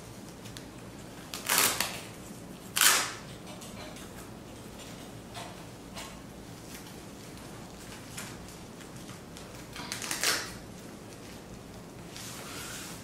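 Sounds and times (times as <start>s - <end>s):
velcro strip ripping: 1.3s - 2.1s, 2.7s - 3.2s, 9.9s - 10.6s.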